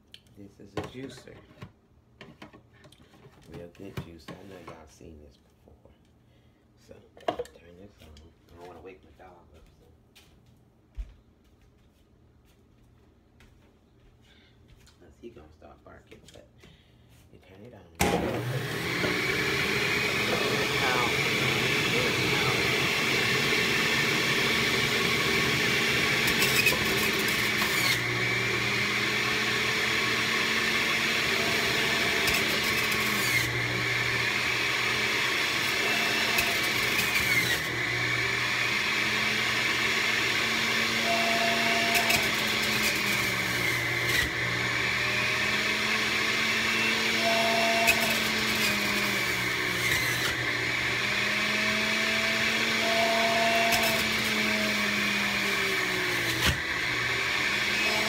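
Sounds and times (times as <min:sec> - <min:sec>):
juicer motor running: 0:18.0 - 0:58.0.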